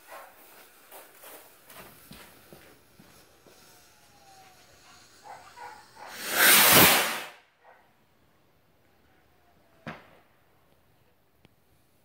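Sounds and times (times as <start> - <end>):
firework launching whoosh: 6.0 - 7.4.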